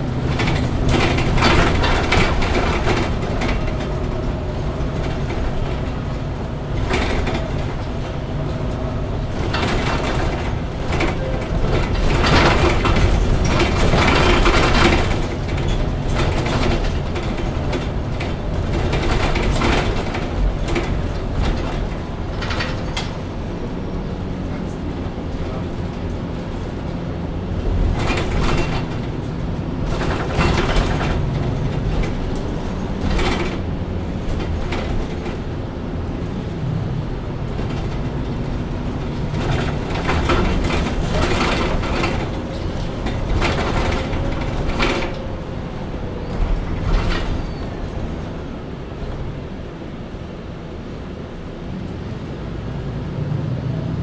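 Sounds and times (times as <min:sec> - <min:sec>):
bus engine idling: 0:00.0 - 0:54.0.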